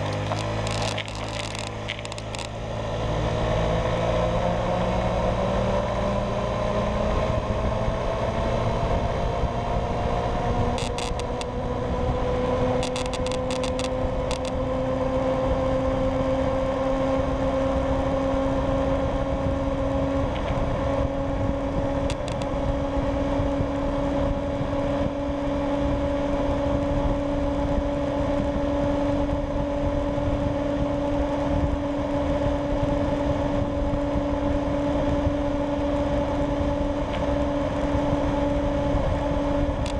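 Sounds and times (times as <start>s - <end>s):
scooter engine: 0.0s - 3.5s, 10.5s - 12.1s, 12.7s - 14.8s
road and wind noise: 0.0s - 39.9s.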